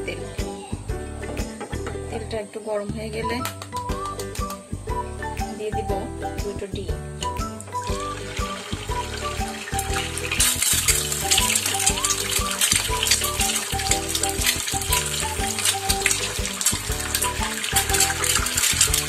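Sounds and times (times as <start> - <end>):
background music with beat: 0.0 - 2.1, 3.3 - 19.0
eggs sizzling in oil: 7.1 - 19.0.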